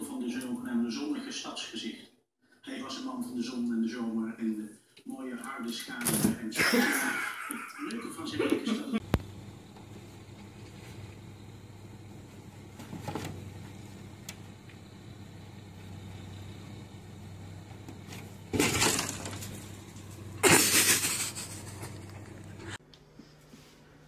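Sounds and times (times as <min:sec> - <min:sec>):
steady low hum: 0:08.9 - 0:24.0
rough crashing scrapes: 0:18.5 - 0:21.9.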